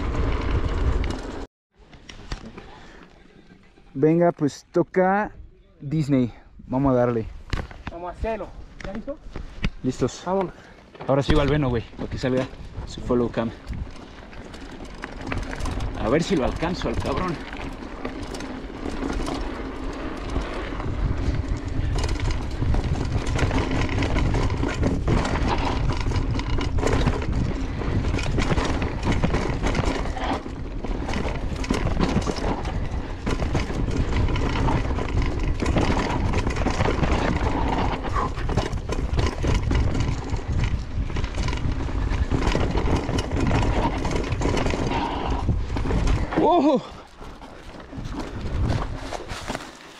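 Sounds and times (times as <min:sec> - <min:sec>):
wind rumbling on microphone: 0:00.0 - 0:01.5, 0:11.3 - 0:49.6
bike rattling over bumps: 0:00.0 - 0:04.6, 0:06.3 - 0:49.9
tyres rolling over dirt: 0:10.9 - 0:49.9.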